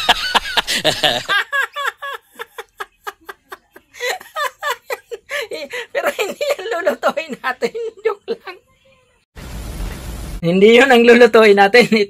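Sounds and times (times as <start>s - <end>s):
man laughing heartily: 0.0s - 6.8s.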